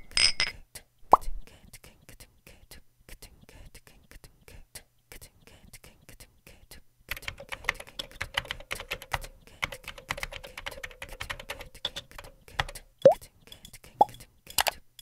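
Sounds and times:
laptop keyboard typing: 7.1s - 12.9s.

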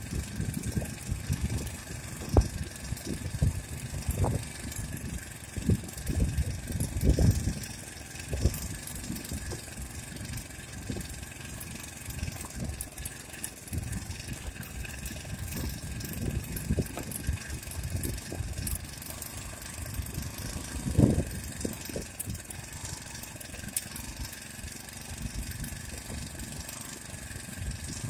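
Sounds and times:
small engine running: 0.0s - 28.0s.

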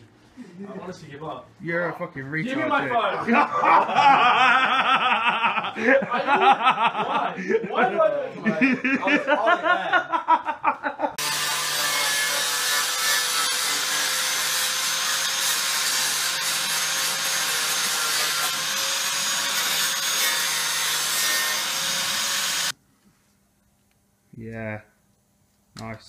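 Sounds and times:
angle grinder grinding metal: 11.2s - 22.7s.

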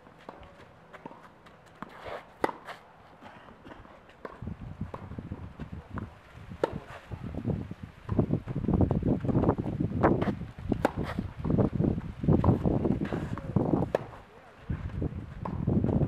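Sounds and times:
racket hitting tennis ball: 0.1s - 7.3s, 9.2s - 15.7s
wind rumble on microphone: 4.3s - 16.0s.

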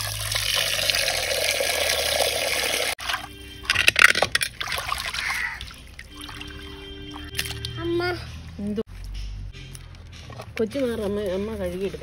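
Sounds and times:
running water: 0.0s - 3.3s
water splashing and sloshing: 0.0s - 8.8s.

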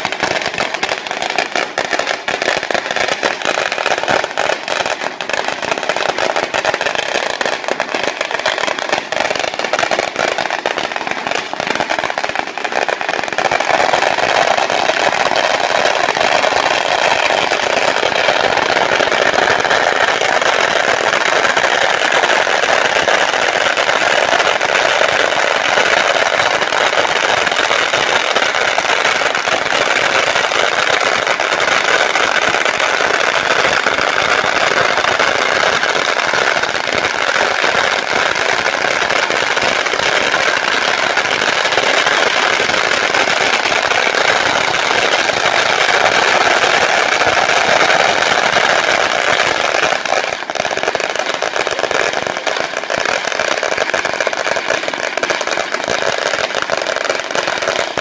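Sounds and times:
firecrackers exploding: 0.0s - 58.0s.

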